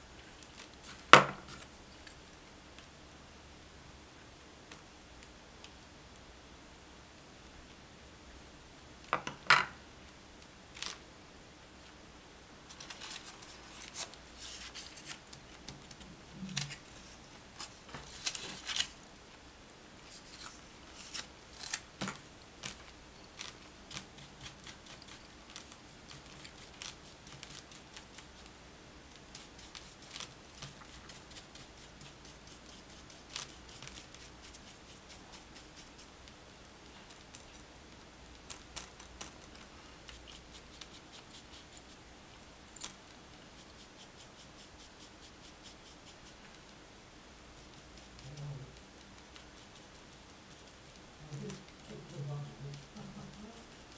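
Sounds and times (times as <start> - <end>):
brush scratching on paper: 29.3 - 36.1, 40.0 - 42.0, 43.5 - 46.6, 47.6 - 53.9.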